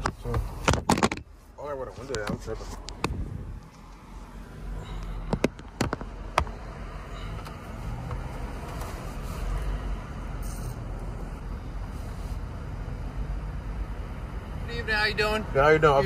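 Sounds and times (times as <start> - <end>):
sharp clicks and knocks: 0.0 - 1.3, 5.2 - 6.6
low vehicle rumble: 0.0 - 16.0.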